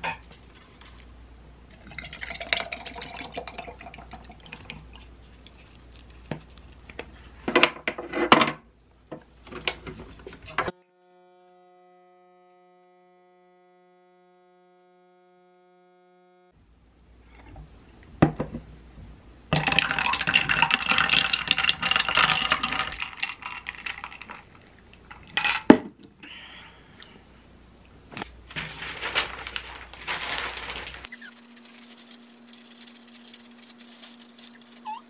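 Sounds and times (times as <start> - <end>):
milk poured over ice: 1.7 - 5.1, 19.6 - 24.6
espresso machine humming: 10.7 - 16.5.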